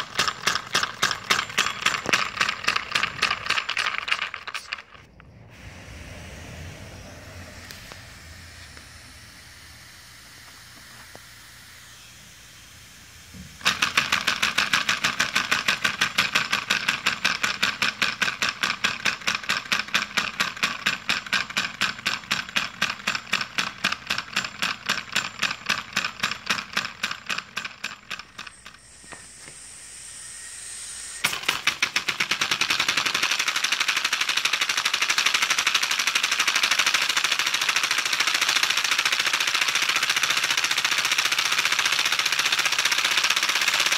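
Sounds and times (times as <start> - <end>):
air hissing: 5.3 - 16.5, 28.2 - 32.5.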